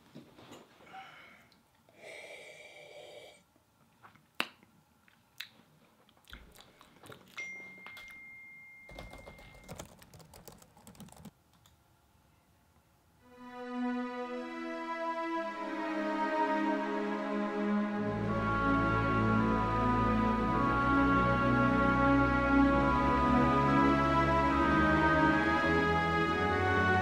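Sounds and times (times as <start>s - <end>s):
keyboard and mouse clicks: 8.9s - 11.8s.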